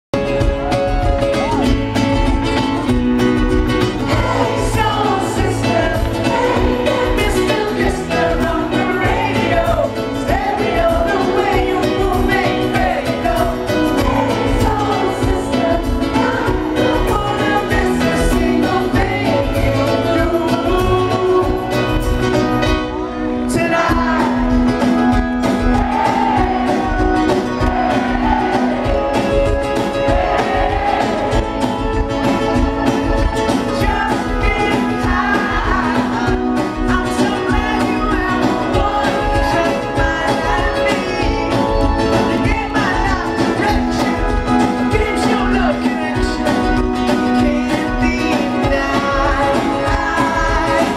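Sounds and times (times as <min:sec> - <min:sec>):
pop-rock band playing live: 0:00.1 - 0:50.9
man singing: 0:03.7 - 0:50.9.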